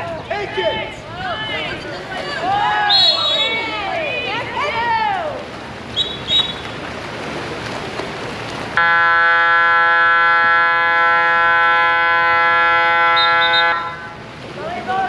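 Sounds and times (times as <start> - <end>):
crowd noise: 0.0 - 8.3, 12.8 - 15.0
water splashing: 0.0 - 15.0
referee's whistle: 2.9 - 3.6, 6.0 - 6.6, 13.1 - 14.0
buzzing game clock horn: 8.8 - 14.0.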